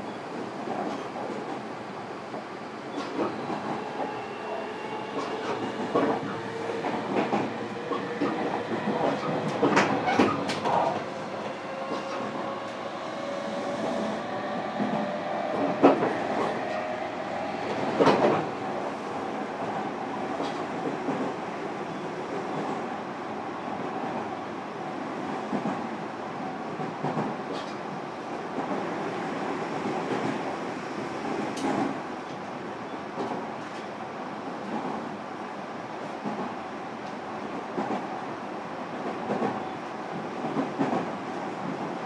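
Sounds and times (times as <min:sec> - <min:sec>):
train wheels rumbling: 0:02.3 - 0:22.9.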